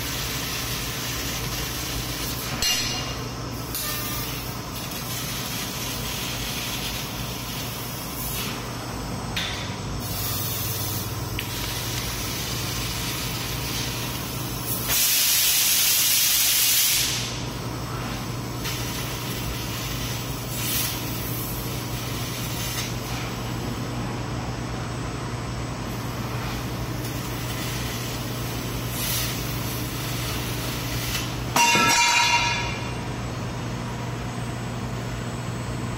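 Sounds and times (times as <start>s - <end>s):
hiss of cutting gas and sparks: 0.0s - 8.6s, 10.0s - 17.4s, 18.6s - 23.4s, 25.9s - 31.5s
machine low hum: 17.3s - 35.9s.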